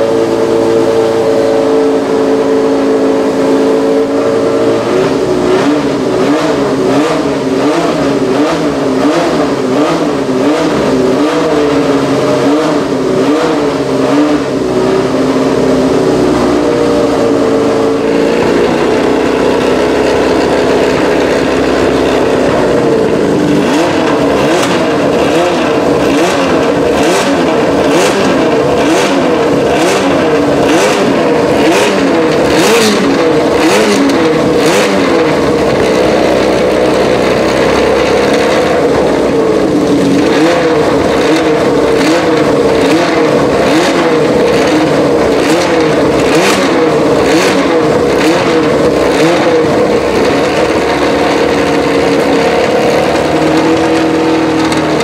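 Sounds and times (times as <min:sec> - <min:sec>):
racing car engine revving: 0:00.0 - 0:55.0
engine pops: 0:20.3 - 0:55.0.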